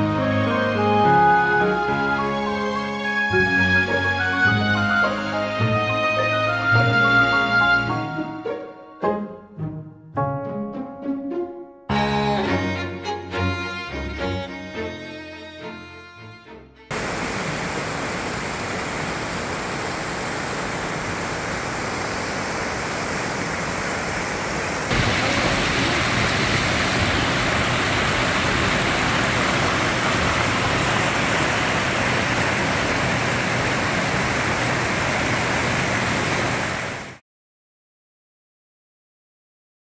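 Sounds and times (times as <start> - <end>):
stream rushing over rocks: 16.9 - 37.2.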